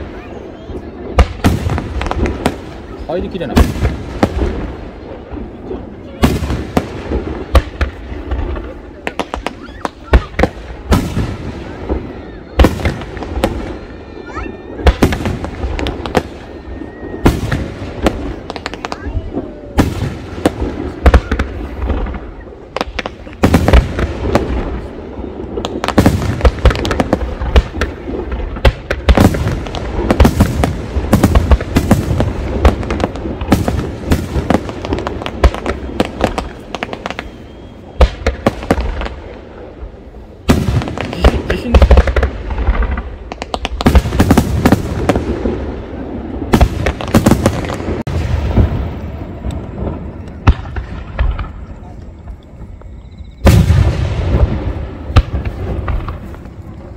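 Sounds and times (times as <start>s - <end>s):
fireworks bangs and crackles: 0.0s - 56.9s.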